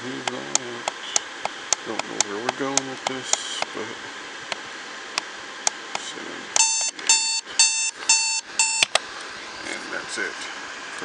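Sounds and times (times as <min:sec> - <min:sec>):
alarm clock beeps: 0:06.6 - 0:08.9.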